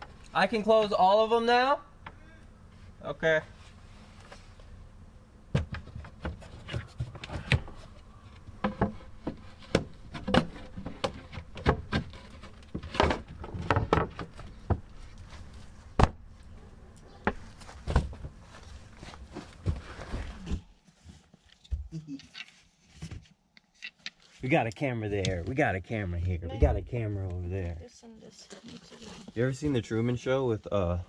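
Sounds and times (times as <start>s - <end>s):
wooden boards knocking and scraping: 5.5s - 16.2s, 17.2s - 18.4s.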